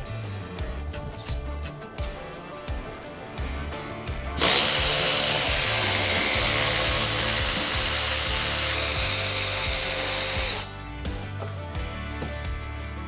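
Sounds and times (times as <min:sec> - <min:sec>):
power ratchet whining: 0:02.7 - 0:10.8.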